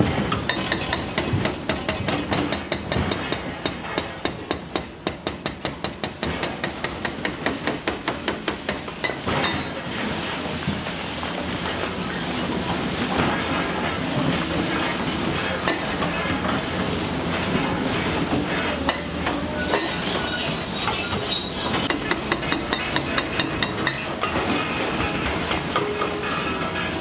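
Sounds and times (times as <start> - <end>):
demolition excavator running: 6.1 - 27.0
steel rebar scraping and screeching: 17.6 - 27.0.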